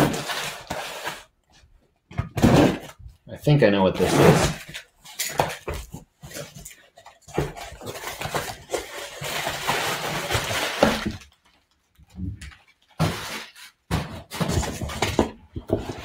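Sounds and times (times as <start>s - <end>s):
cardboard scraping and rustling: 0.0s - 1.3s, 4.0s - 11.4s, 13.0s - 16.0s
cardboard tearing: 0.0s - 1.3s, 4.0s - 6.7s, 7.3s - 11.4s.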